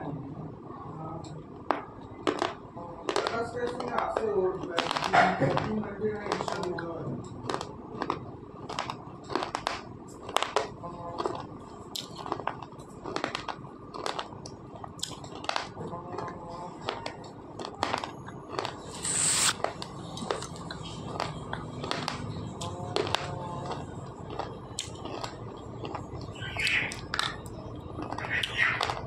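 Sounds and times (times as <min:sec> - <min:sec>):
pencil being chewed crunching: 0:11.2 - 0:15.6, 0:16.8 - 0:20.5, 0:23.6 - 0:26.2.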